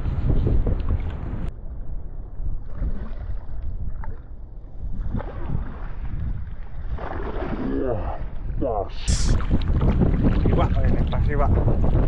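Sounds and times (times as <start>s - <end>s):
wind buffeting microphone: 0.0s - 12.0s
water sloshing: 2.6s - 12.0s.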